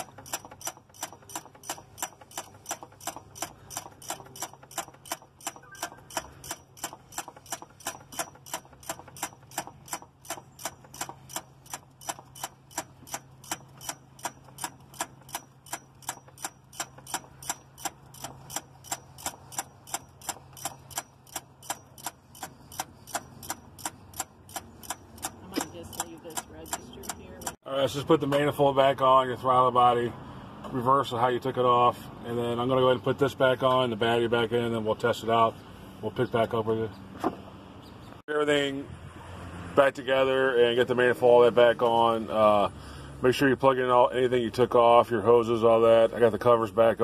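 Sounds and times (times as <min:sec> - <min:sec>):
mechanical ticking: 0:00.0 - 0:27.6.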